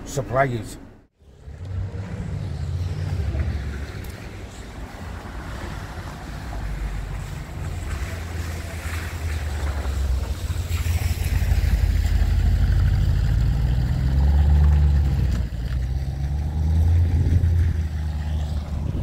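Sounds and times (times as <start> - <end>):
wind buffeting microphone: 16.7 - 19.0.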